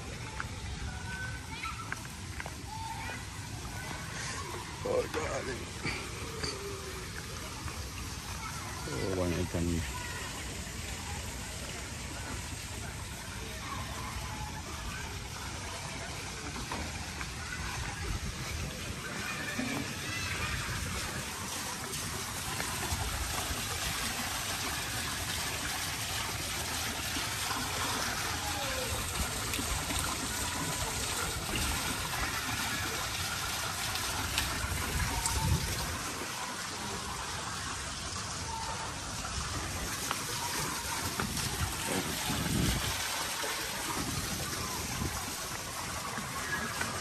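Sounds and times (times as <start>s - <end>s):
waterfall splashing into pond: 0.0s - 47.0s.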